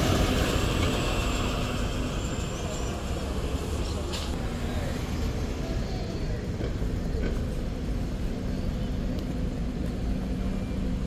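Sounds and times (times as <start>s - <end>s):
bus engine running: 0.0s - 11.0s
street traffic noise: 0.0s - 11.0s.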